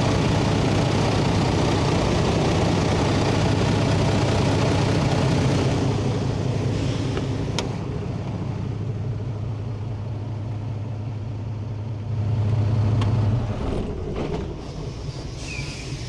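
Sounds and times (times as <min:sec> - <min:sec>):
diesel truck engine idling: 0:00.0 - 0:16.0.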